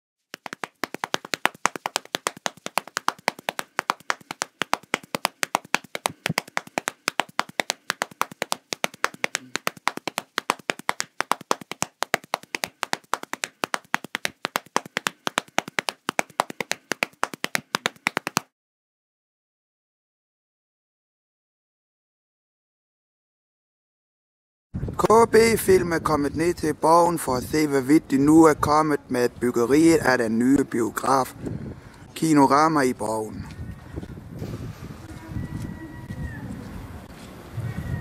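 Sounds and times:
sharp claps: 0:00.3 - 0:18.5.

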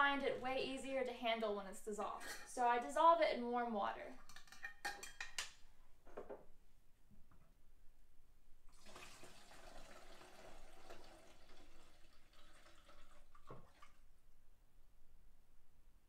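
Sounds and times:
liquid pouring through a funnel: 0:08.7 - 0:14.0.

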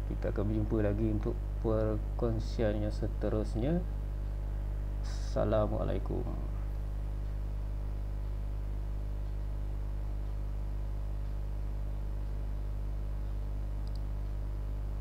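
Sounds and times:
low electrical hum: 0:00.0 - 0:15.0
faint ticks: 0:07.2 - 0:14.5.

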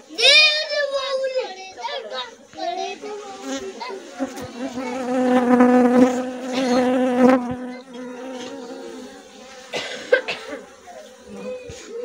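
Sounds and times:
honeybees buzzing: 0:03.4 - 0:09.8.

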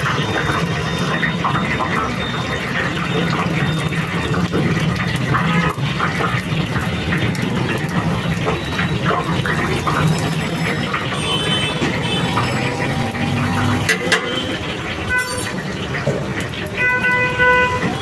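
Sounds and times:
food deep-frying in oil: 0:00.0 - 0:18.0.

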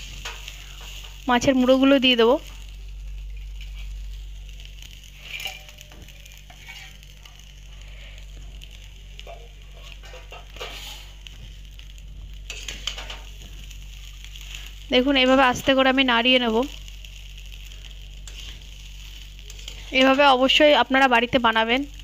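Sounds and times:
faint sizzle of frying: 0:00.0 - 0:22.0
metal spatula scraping a pan: 0:05.1 - 0:07.5, 0:09.2 - 0:11.2, 0:12.5 - 0:13.3, 0:18.2 - 0:20.6.

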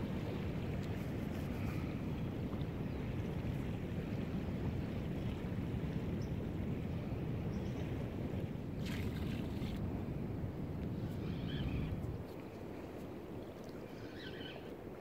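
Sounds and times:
water lapping on shore: 0:00.0 - 0:07.3, 0:08.0 - 0:10.0
wind on microphone: 0:00.0 - 0:15.0.

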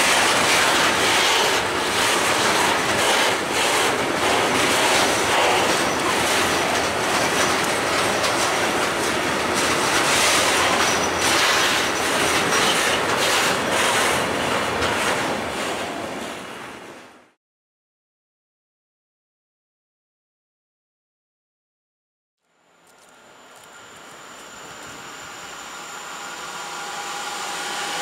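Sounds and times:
train wheels clattering over rail joints: 0:00.0 - 0:15.4
faint high wheel squeal: 0:10.5 - 0:11.8, 0:23.2 - 0:28.0.

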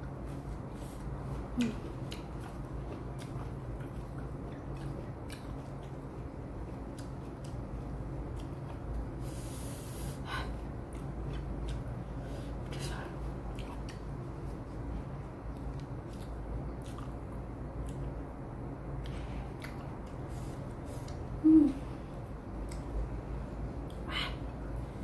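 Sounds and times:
close chewing with mouth clicks: 0:00.0 - 0:09.9, 0:10.5 - 0:18.3, 0:18.9 - 0:21.4, 0:22.5 - 0:23.0
steady low hum: 0:00.0 - 0:25.0
nose sniff: 0:09.2 - 0:10.2.

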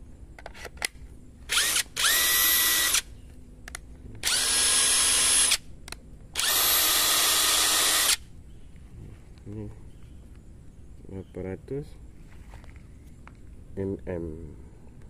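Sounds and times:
impact wrench motor whine: 0:01.5 - 0:03.1, 0:04.2 - 0:05.6, 0:06.4 - 0:08.2.

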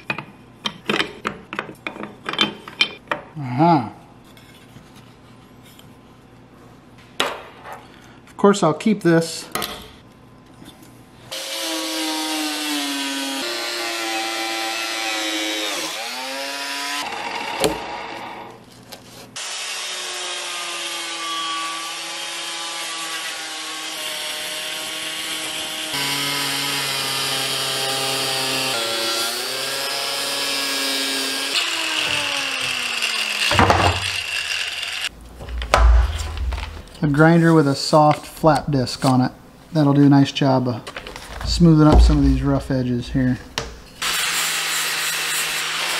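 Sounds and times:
angle grinder cutting pipe: 0:11.3 - 0:18.6, 0:19.4 - 0:35.1, 0:44.0 - 0:45.9.

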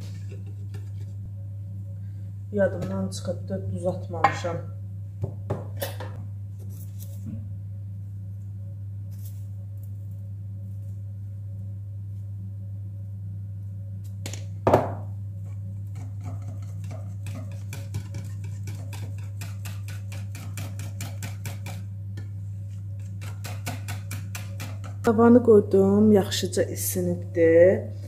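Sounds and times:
steady low hum: 0:00.0 - 0:28.0
whisk clicking against bowl: 0:16.0 - 0:21.9, 0:23.0 - 0:25.1.

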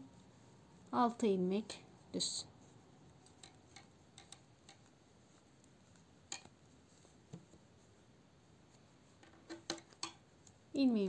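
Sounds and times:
knitting needles clicking: 0:03.0 - 0:07.1, 0:09.2 - 0:11.0.

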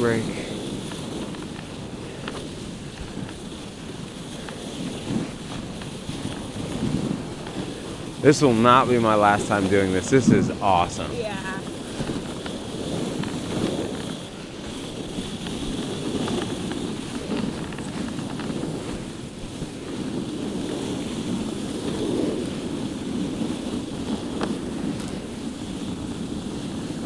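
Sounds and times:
sled runners sliding on snow: 0:00.0 - 0:27.0
wind on microphone: 0:00.0 - 0:27.0
faint ticks: 0:00.8 - 0:03.4.

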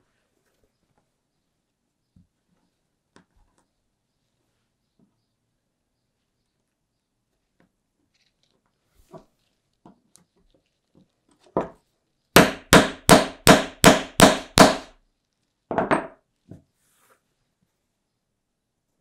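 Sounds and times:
hammer striking metal tool: 0:12.4 - 0:14.9.

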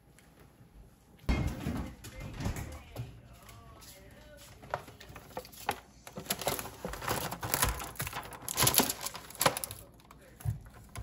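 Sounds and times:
plastic packaging crinkling: 0:04.6 - 0:11.0.

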